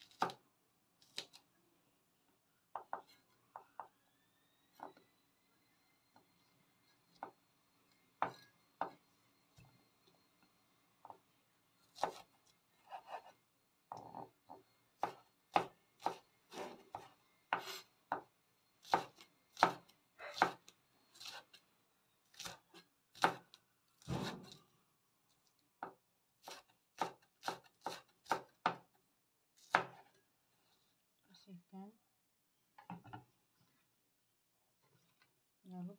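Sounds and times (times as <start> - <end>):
knife chopping on wooden board: 12.0 - 12.3, 15.0 - 18.2, 18.8 - 20.6, 22.3 - 24.6, 26.4 - 28.8, 29.6 - 30.1.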